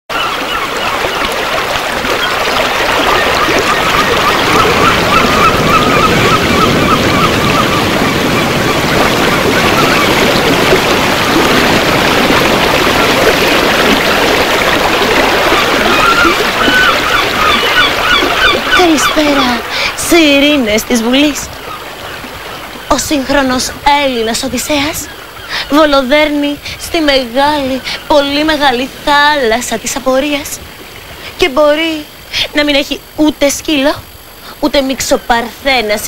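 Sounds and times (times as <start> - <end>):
sea surf rushing: 0.1 - 25.8.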